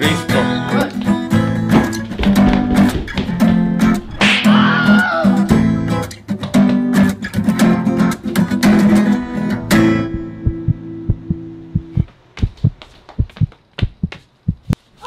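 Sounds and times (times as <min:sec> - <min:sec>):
strummed guitar chords: 0:00.0 - 0:12.0
soft low thumps: 0:01.0 - 0:04.2, 0:09.7 - 0:14.8.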